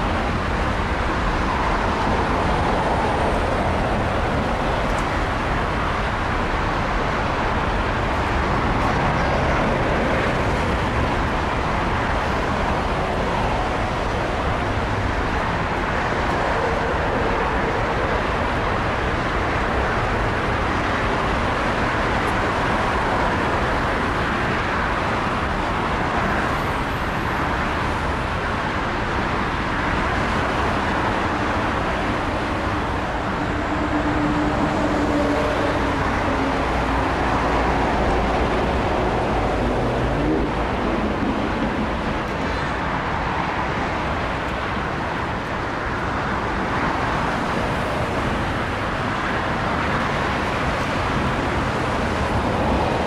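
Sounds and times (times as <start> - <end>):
jet engines rumbling: 30.4 - 53.0.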